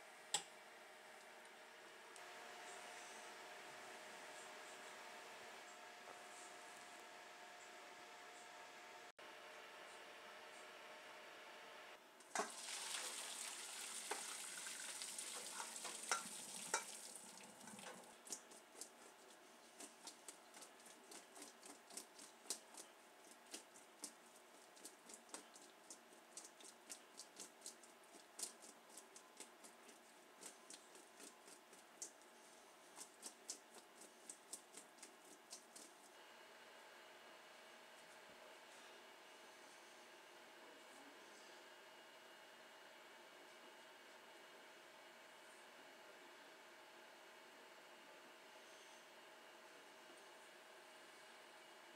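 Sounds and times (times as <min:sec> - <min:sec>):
water splashing into colander: 0:12.3 - 0:18.4.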